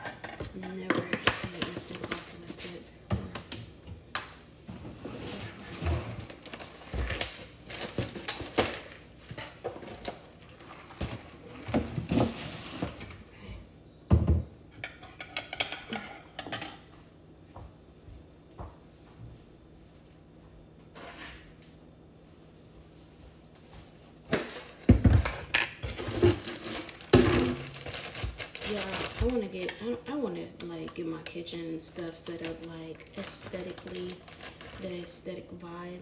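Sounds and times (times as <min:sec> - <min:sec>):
kitchen items clattering on shelves: 0:04.7 - 0:13.3, 0:14.1 - 0:16.9, 0:24.3 - 0:30.0.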